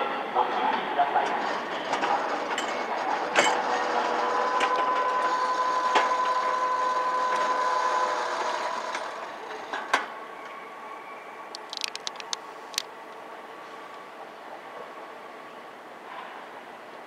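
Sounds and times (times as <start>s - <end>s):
train whine: 0.0s - 17.0s
electric train running: 1.1s - 13.5s
sharp clicks: 11.5s - 12.9s.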